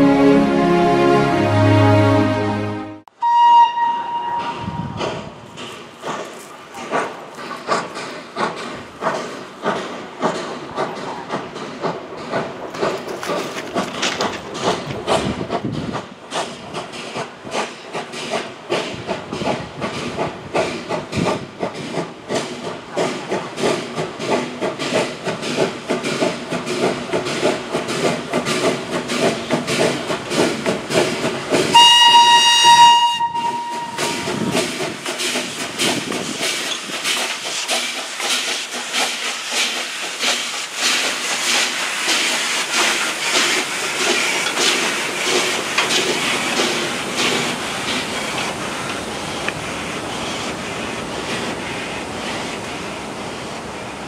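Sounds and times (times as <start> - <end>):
steam whistle blast: 0.0 - 5.0, 31.7 - 34.5
steam locomotive chuffing: 3.3 - 54.0.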